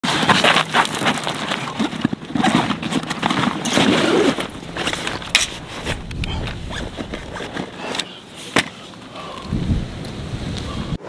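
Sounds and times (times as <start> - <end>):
rustling and crunching on gravel: 0.0 - 10.7
backpack clicks and knocks: 0.1 - 8.8.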